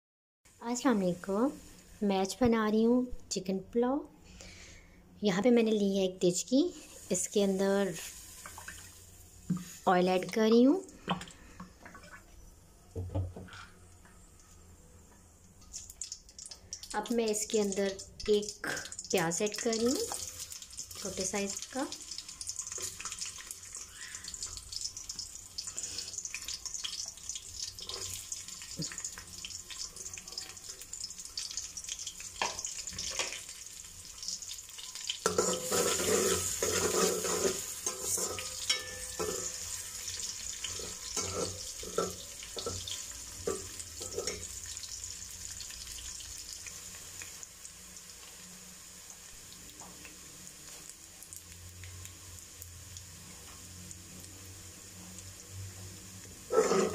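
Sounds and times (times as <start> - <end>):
onions sizzling in hot oil: 0.5 - 3.0, 5.7 - 10.8, 15.6 - 56.9
metal spoon scraping pot: 35.3 - 39.6, 40.7 - 42.7, 56.5 - 56.9.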